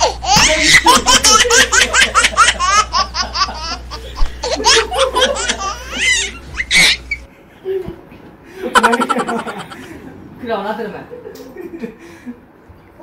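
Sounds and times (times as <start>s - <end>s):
hearty laughter: 0.4s - 10.2s.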